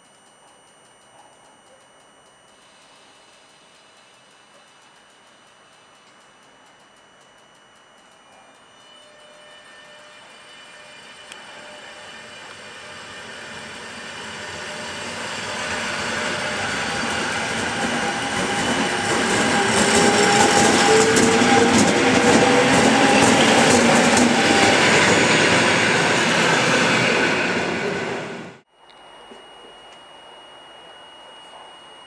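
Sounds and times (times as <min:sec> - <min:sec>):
steady train whine: 0:00.0 - 0:32.0
train rumbling past: 0:09.0 - 0:28.6.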